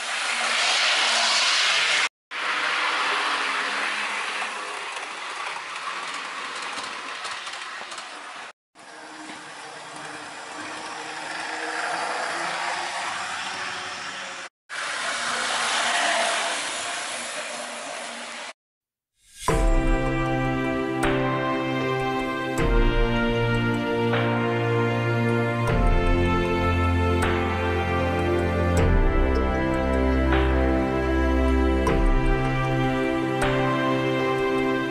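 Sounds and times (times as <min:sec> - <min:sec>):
model train wheels rattling on rails: 0:02.5 - 0:18.4
faint motor hum: 0:02.9 - 0:18.5.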